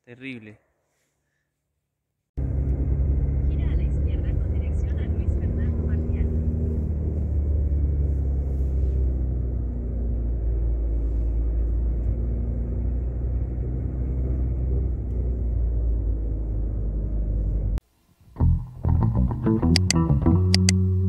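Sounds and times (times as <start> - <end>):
vehicle engine and road noise: 2.4 - 17.8, 19.6 - 21.0.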